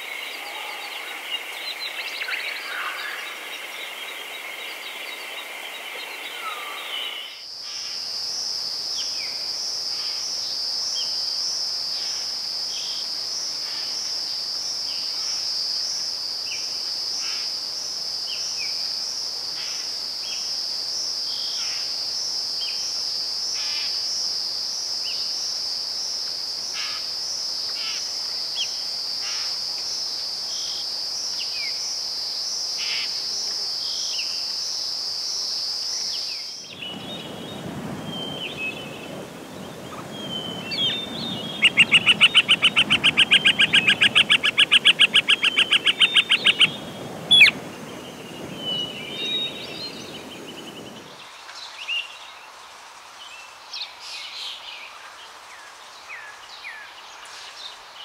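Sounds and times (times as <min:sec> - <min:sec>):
high-pitched insect trill: 0:34.1 - 0:51.1
bird chirps: 0:36.8 - 0:51.0.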